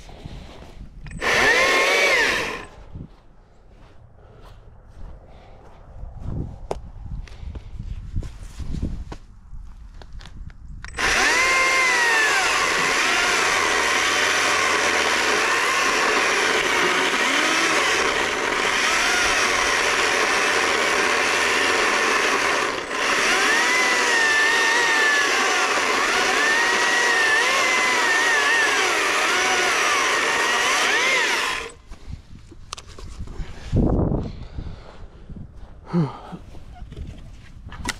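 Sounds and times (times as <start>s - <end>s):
battery chainsaw cutting wood: 1.1s - 2.7s, 10.9s - 31.8s.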